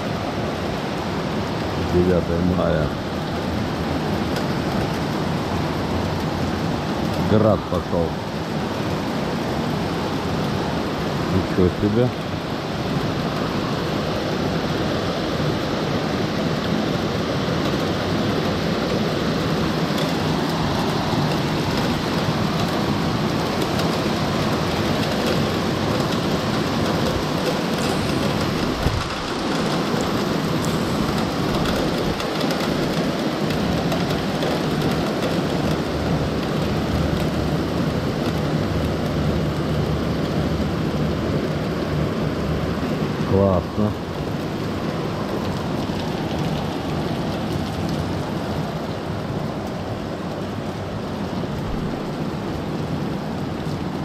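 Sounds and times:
rain and hail hissing: 0.0s - 54.0s.

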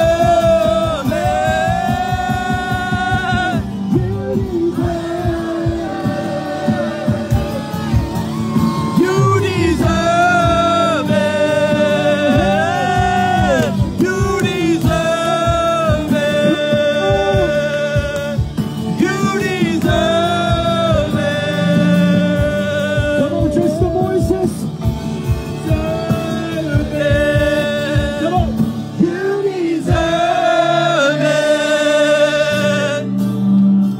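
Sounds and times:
person singing long notes: 0.0s - 24.1s
band accompaniment: 0.0s - 33.9s.

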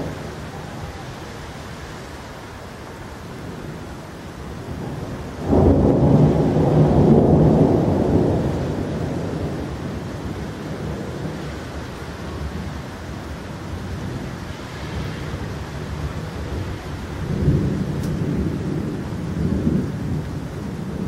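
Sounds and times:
steady rain: 0.0s - 21.0s
thunder clap and rumble: 4.4s - 21.0s.

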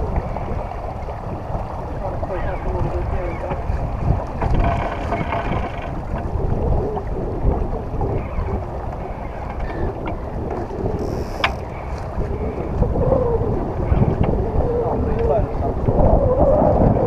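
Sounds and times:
wind buffeting microphone: 0.0s - 17.0s
short high squeak: 11.0s - 11.6s.

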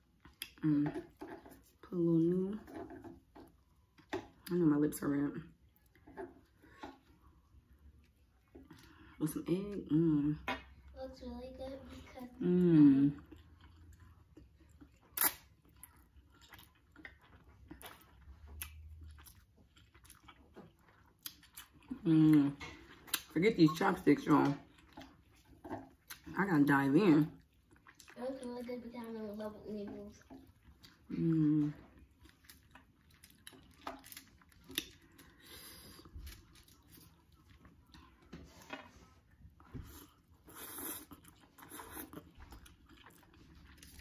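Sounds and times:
wet chewing: 13.0s - 44.0s
person slurping noodles: 40.4s - 42.2s.

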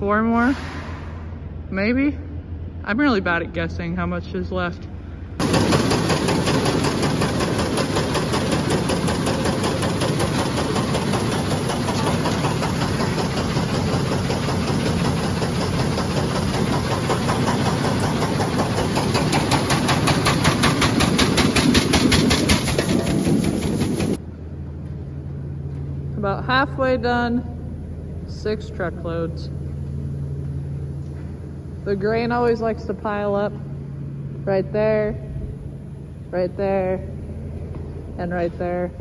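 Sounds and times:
grain auger rattling: 5.4s - 24.2s.

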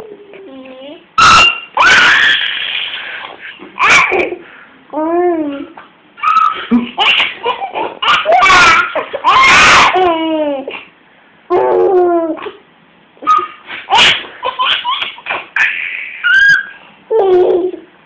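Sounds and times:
baby laughing in squeals: 1.2s - 4.4s, 5.5s - 10.9s, 13.2s - 17.9s.

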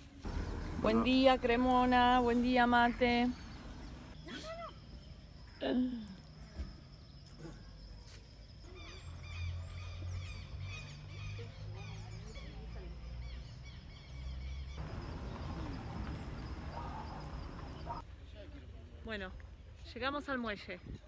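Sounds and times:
many birds chirping: 0.2s - 5.6s, 8.5s - 18.0s.

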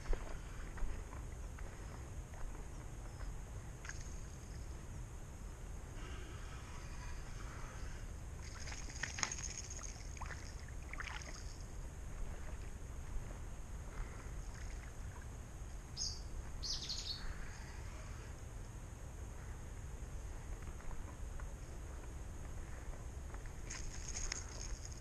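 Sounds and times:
wind: 0.0s - 25.0s
flowing water: 8.4s - 12.8s
bird chirps: 16.0s - 17.7s.

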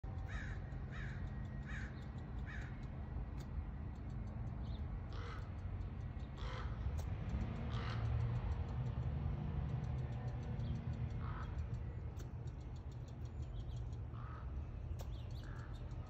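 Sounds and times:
squirrel alarm barks: 0.2s - 2.8s, 7.5s - 8.6s.

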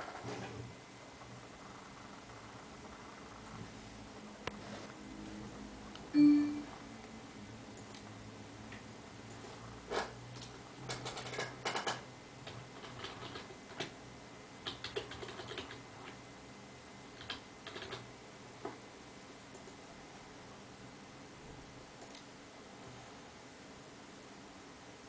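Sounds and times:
faint low hum: 0.0s - 25.0s
keyboard keys clicking: 10.4s - 14.0s, 14.6s - 16.2s, 17.2s - 18.0s.

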